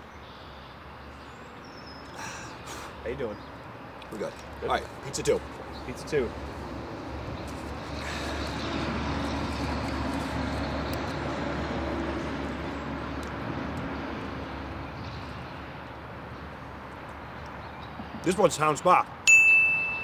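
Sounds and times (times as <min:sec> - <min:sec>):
distant engine drone: 0:00.0 - 0:20.0.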